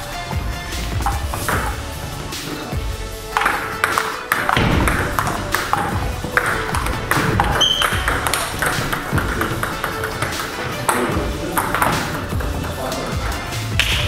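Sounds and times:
background music: 0.0 - 14.0
table tennis ball clicks: 3.3 - 12.8.

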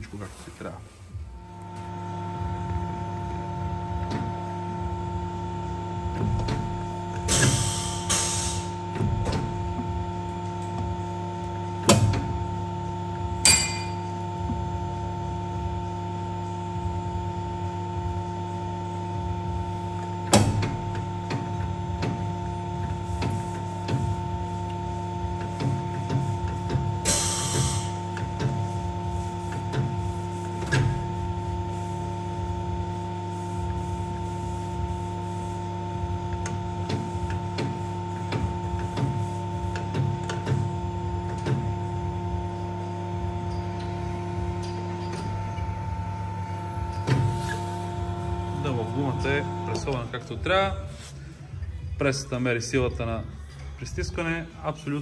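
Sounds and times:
crimping press humming: 17.6 - 50.9.

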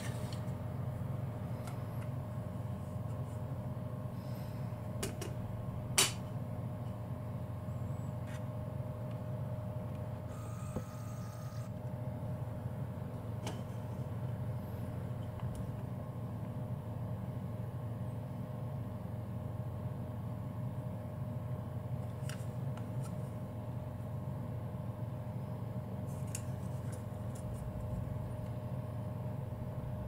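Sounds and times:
low hum: 0.0 - 18.5.

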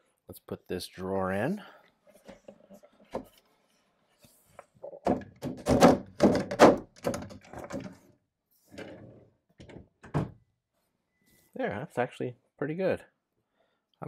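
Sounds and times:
drawer knocking and rattling: 5.0 - 8.1, 8.8 - 10.4.

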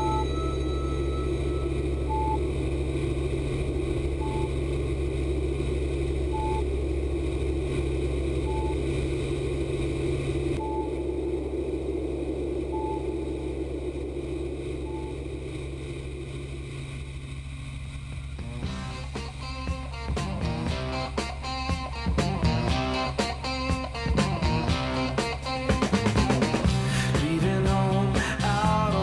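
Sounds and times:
short high beep: 0.0 - 2.4, 4.2 - 4.5
helicopter engine and rotor drone: 0.0 - 11.1, 12.6 - 20.1.

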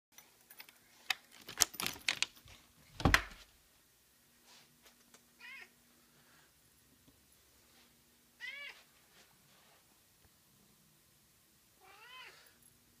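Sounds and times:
cat meowing: 5.4 - 5.7, 8.4 - 8.8, 11.8 - 12.5.

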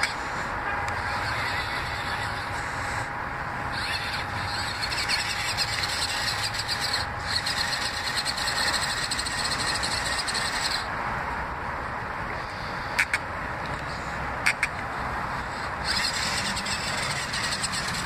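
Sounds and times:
electric toy truck motor whining: 0.0 - 10.9, 15.5 - 18.0.

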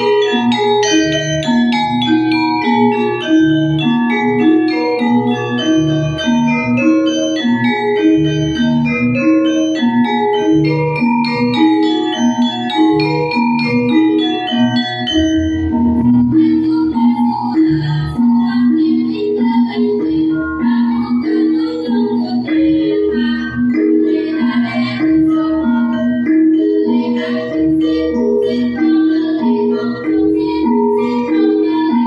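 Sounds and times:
gamelan gongs ringing: 0.0 - 19.8, 21.2 - 32.0
lower struck notes: 15.1 - 16.6.

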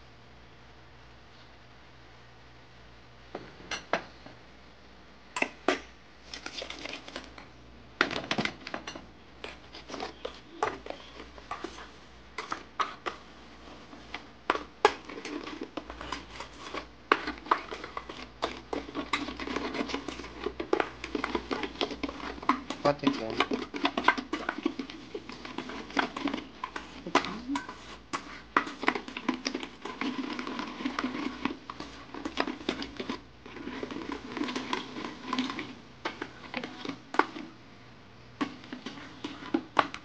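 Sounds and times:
metal spoon scraping a bowl: 8.9 - 37.6, 38.4 - 40.0.

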